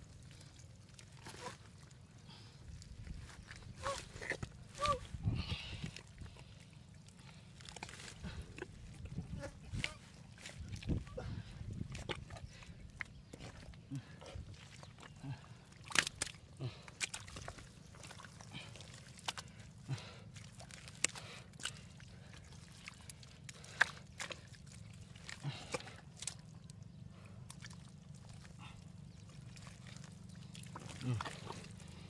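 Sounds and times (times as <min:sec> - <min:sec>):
wet mud squelching: 0:00.0 - 0:32.0
small water splashes: 0:05.7 - 0:32.0
sharp wet clicks: 0:14.7 - 0:19.6, 0:20.4 - 0:32.0.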